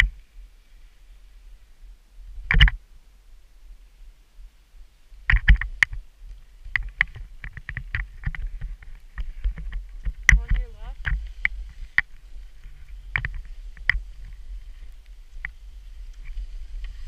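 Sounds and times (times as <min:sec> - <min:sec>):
wind rumble on microphone: 0:00.0 - 0:17.0
clicks and knocks from skis: 0:02.4 - 0:02.8, 0:05.2 - 0:17.0.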